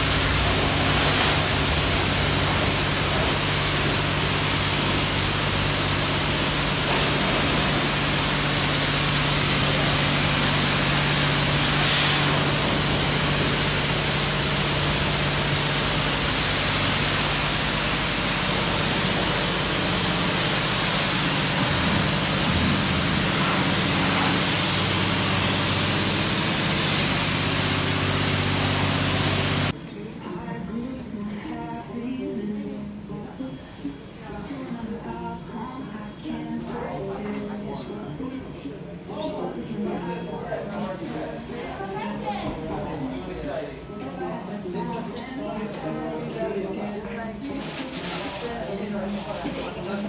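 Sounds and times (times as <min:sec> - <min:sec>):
pressure washer spraying car: 0:00.0 - 0:29.7.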